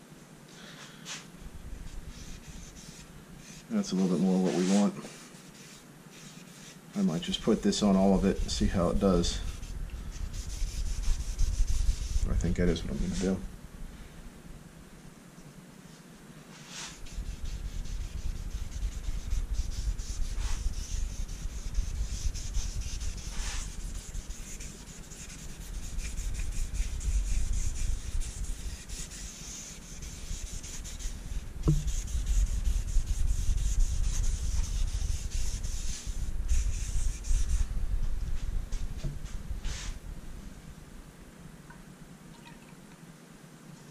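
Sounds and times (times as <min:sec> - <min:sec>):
cloth scrubbing over wood: 0:02.2 - 0:06.7, 0:16.7 - 0:37.6.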